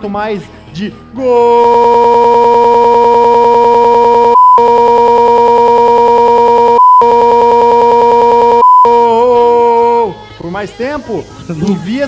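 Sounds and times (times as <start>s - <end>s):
man shouting goal: 1.2s - 9.8s
short beep tones: 4.4s - 5.0s, 6.4s - 9.2s.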